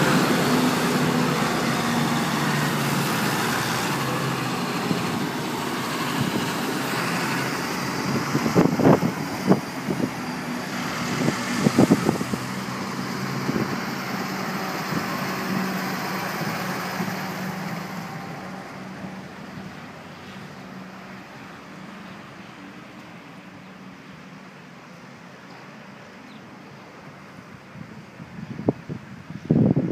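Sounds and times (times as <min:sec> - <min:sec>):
tractor diesel engines passing: 0:00.0 - 0:29.9.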